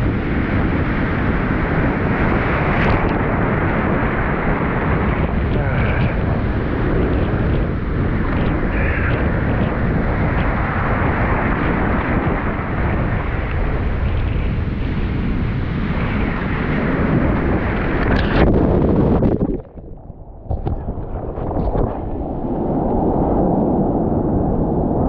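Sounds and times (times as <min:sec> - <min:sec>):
surf and whitewater rushing: 0:00.0 - 0:19.6
wind buffeting microphone: 0:00.0 - 0:25.0.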